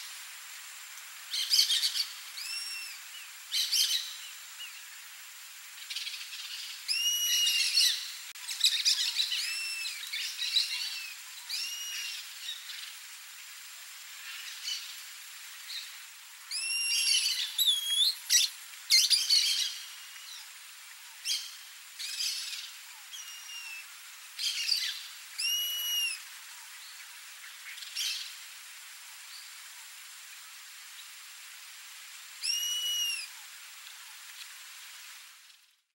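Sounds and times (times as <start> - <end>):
bird whining calls: 6.9 - 7.9, 23.0 - 23.9, 24.5 - 26.2, 32.4 - 33.4.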